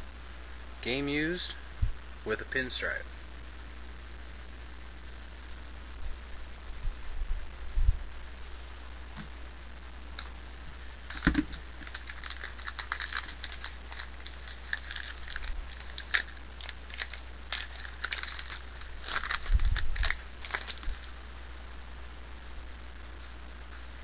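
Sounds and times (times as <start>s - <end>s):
card pack wrapper crinkling and tearing: 11.0s - 21.2s.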